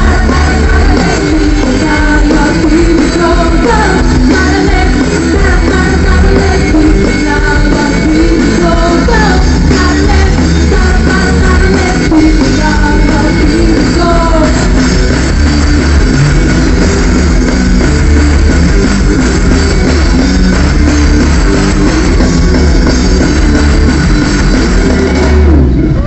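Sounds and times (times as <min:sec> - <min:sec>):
woman singing: 0:00.0 - 0:14.8
drums: 0:00.0 - 0:26.0
guitar: 0:00.0 - 0:26.0
heavy bass: 0:00.0 - 0:26.0.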